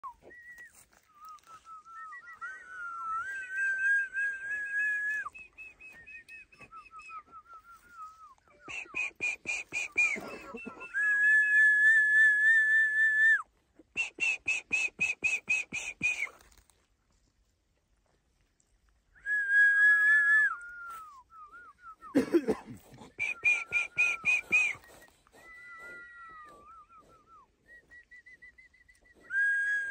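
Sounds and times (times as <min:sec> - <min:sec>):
high whistled notes: 0:23.2 - 0:29.9.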